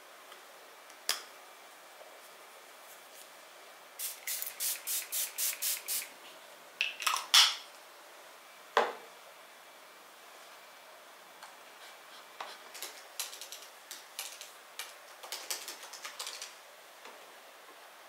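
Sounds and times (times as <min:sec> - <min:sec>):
spray bottle hissing: 0:04.0 - 0:06.1.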